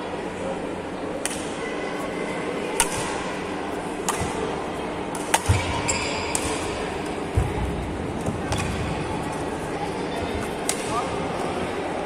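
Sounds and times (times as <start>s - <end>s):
racket hitting shuttlecock: 5.1s - 6.8s.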